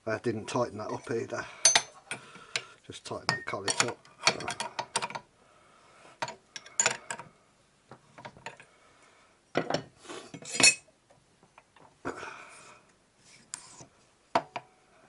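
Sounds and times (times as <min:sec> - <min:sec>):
spanner clinking on metal: 0:00.9 - 0:02.2, 0:03.3 - 0:05.2, 0:06.2 - 0:07.2.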